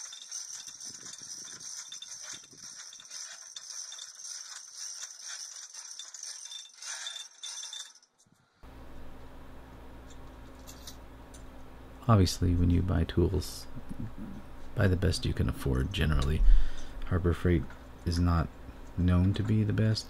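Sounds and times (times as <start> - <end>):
chain rattling and clicking: 0.0 - 8.4.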